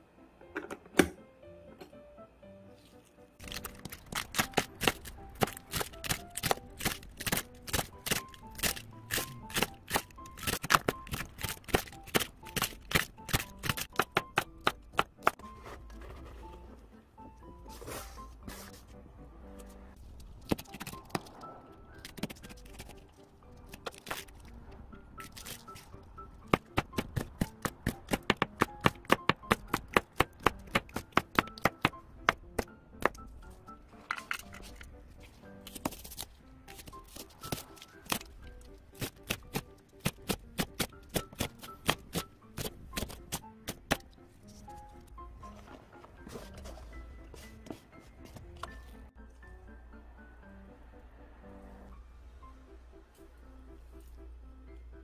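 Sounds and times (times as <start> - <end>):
background music: 0.0 - 55.0
knife chopping cabbage: 3.4 - 16.1, 26.4 - 33.2, 35.7 - 44.0.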